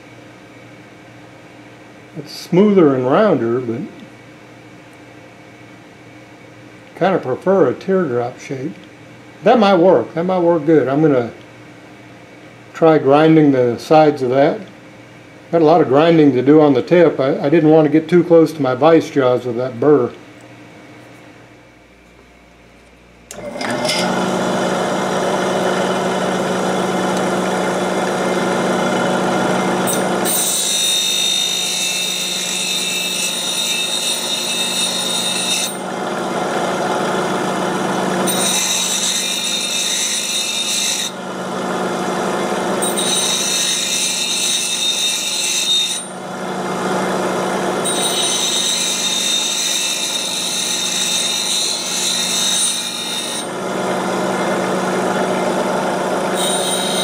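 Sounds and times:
bench grinder motor running: 0:23.3 - 0:57.0.

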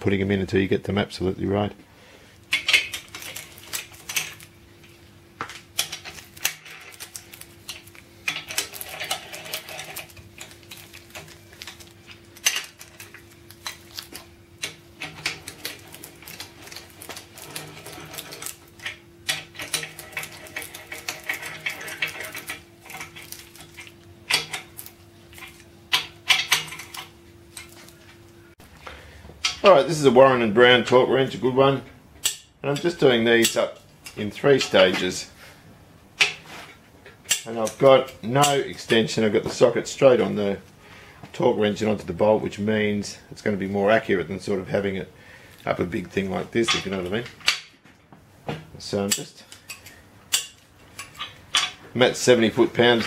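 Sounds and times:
faint steady hum: 0:00.0 - 0:53.0.

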